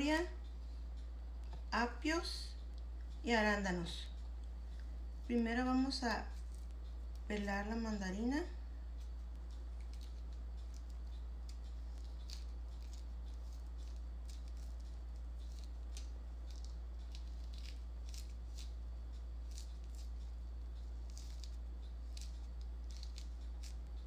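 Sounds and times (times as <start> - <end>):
low hum: 0.0 - 24.0
orange peel tearing: 9.0 - 24.0.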